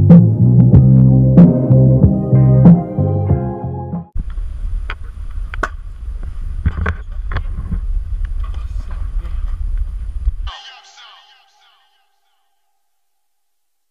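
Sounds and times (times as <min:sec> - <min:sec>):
background music: 0:00.0 - 0:04.1
wind rumbling on microphone: 0:04.2 - 0:10.5.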